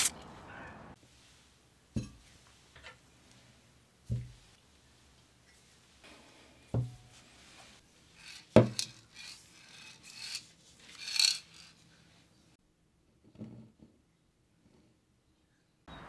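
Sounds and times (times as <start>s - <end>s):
scraping on rusty metal: 6.8s - 11.8s.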